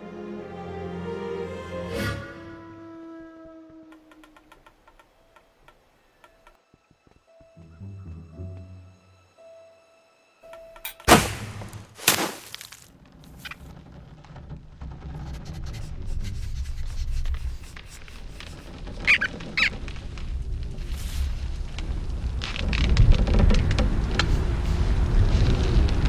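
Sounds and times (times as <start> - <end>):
sharp hits: 10.9 - 12.7
short high squeaks: 18.3 - 19.8.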